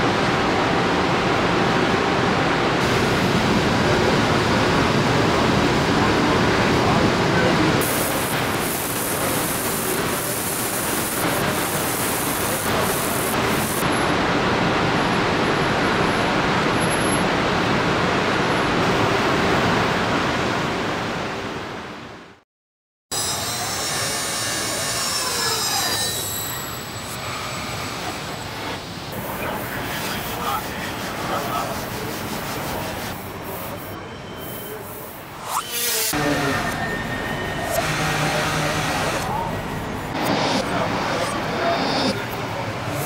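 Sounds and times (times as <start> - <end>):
assembly line machinery noise: 6.3 - 13.9, 23.1 - 43.0
machinery squeals: 23.1 - 28.5, 33.7 - 42.4.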